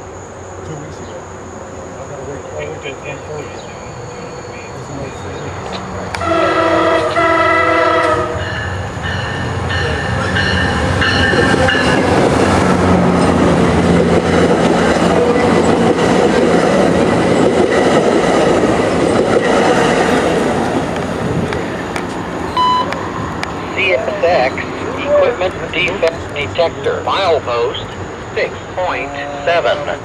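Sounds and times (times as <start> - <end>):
diesel engine humming: 0.0 - 30.0
train wheels rushing on rails: 2.0 - 30.0
locomotive multi-tone horn: 6.1 - 8.8
bell ringing: 8.4 - 12.0.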